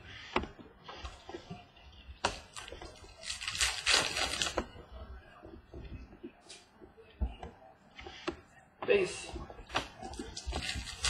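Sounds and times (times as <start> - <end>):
foil pack crinkling: 2.3 - 4.7, 10.1 - 11.0.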